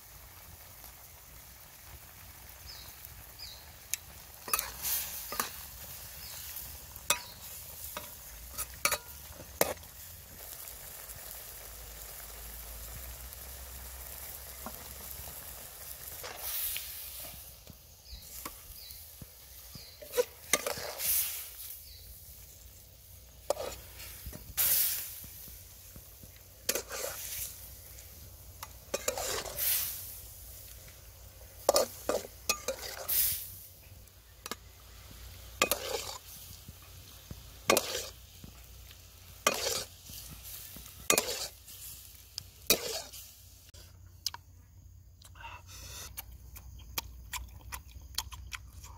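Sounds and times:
food sizzling in a wok: 0:00.0 - 0:44.6
metal spatula scraping pan: 0:04.4 - 0:06.4, 0:07.0 - 0:09.9, 0:19.8 - 0:21.7, 0:23.4 - 0:25.0, 0:26.6 - 0:27.6, 0:28.8 - 0:30.0, 0:31.6 - 0:33.3, 0:35.6 - 0:36.4, 0:37.6 - 0:38.2, 0:39.4 - 0:41.7, 0:42.6 - 0:43.2.

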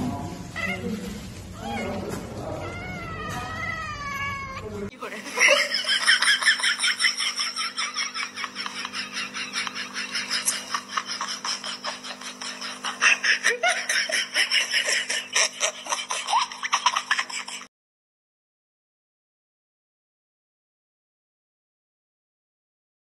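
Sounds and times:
person laughing breathily: 0:08.4 - 0:17.7.

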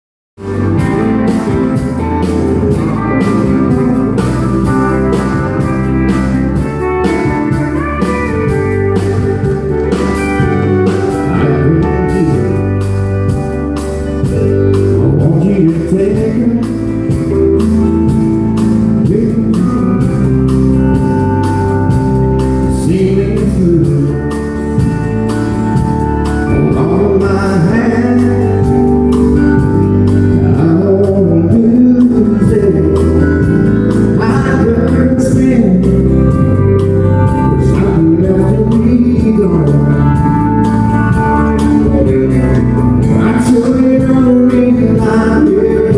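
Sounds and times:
bass line: 0:00.4 - 0:45.9
drums: 0:00.4 - 0:45.9
man singing: 0:11.1 - 0:12.9, 0:14.7 - 0:21.2, 0:22.4 - 0:24.9, 0:26.4 - 0:40.6, 0:41.5 - 0:45.9.

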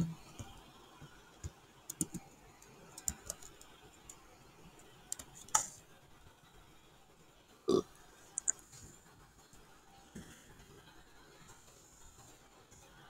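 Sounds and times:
computer keyboard keystrokes: 0:01.9 - 0:02.2, 0:03.0 - 0:04.2, 0:08.4 - 0:08.6.

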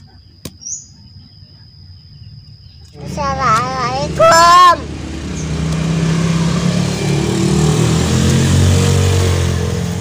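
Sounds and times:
vehicle engine running: 0:02.2 - 0:10.0.

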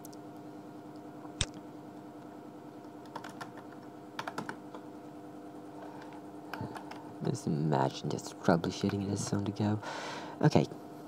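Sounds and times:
steady low hum: 0:00.0 - 0:11.0
computer keyboard keystrokes: 0:03.0 - 0:04.8, 0:06.0 - 0:07.0.

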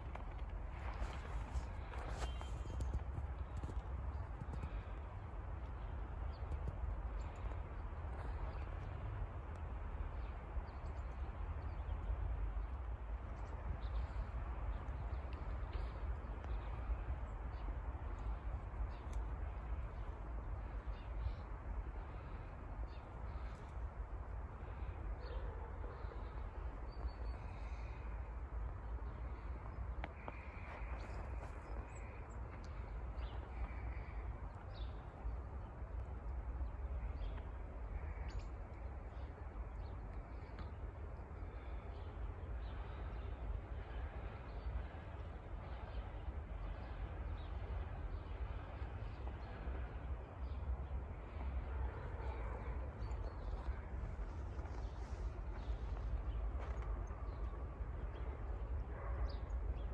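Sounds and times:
crows cawing faintly: 0:30.0 - 0:34.7.

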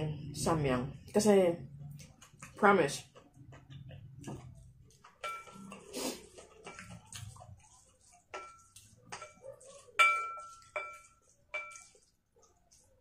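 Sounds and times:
cutlery clinking against a bowl: 0:03.2 - 0:12.1.

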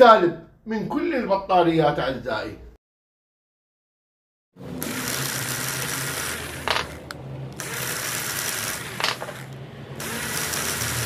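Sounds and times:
rotary tool motor hum: 0:04.6 - 0:11.0
grinding stone hissing on metal: 0:07.6 - 0:11.0.

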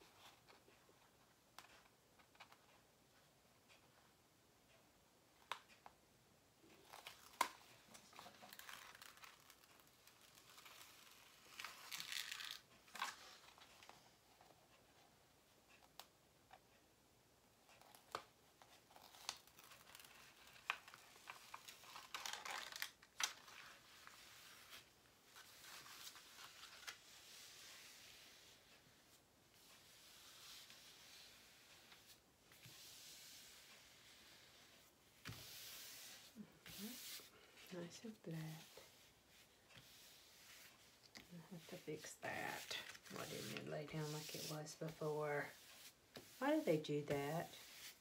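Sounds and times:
plastic film crinkling: 0:06.9 - 0:13.2, 0:19.0 - 0:23.8, 0:41.0 - 0:44.6.

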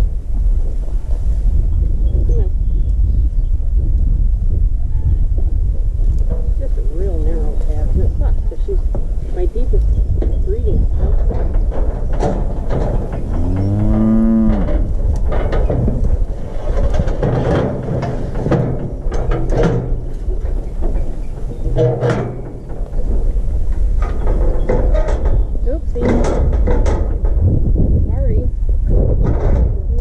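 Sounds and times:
metal chute clanking: 0:06.3 - 0:27.4
cow mooing: 0:13.2 - 0:14.9.

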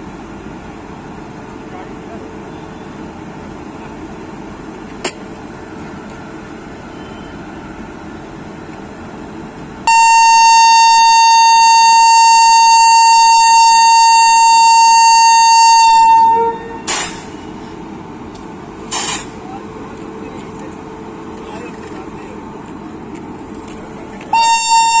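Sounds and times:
locomotive horn blast: 0:09.9 - 0:17.7, 0:24.3 - 0:25.0.

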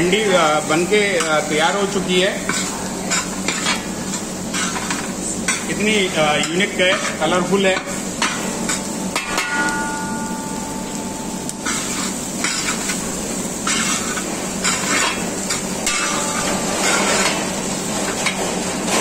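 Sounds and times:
food sizzling in a pan: 0:00.0 - 0:19.0
pan ringing: 0:08.2 - 0:14.0, 0:15.2 - 0:17.0
spatula scraping metal pan: 0:11.6 - 0:13.0, 0:13.6 - 0:19.0.

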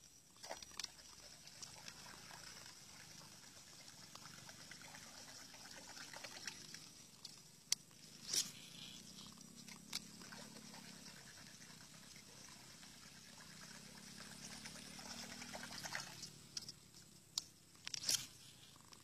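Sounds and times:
fishing reel whirring: 0:00.0 - 0:19.0
small splashes on water: 0:10.2 - 0:16.6.

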